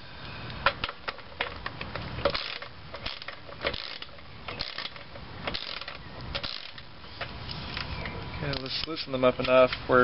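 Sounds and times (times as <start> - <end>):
ratchet wrench clicking: 2.2 - 6.9.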